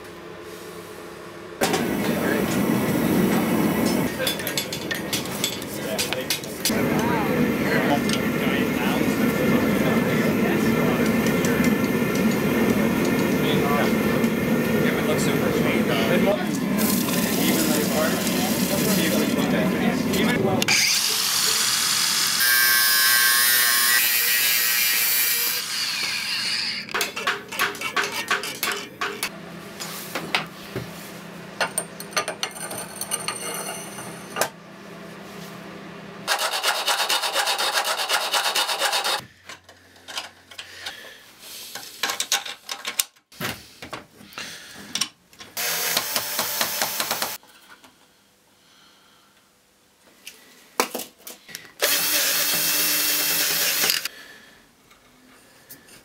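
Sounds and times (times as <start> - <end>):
angle grinder on steel pipe: 20.7 - 26.9, 36.3 - 39.2, 51.8 - 54.1
short bursts of tool noise: 36.3 - 39.2
hand tool rubbing wood: 36.3 - 39.3.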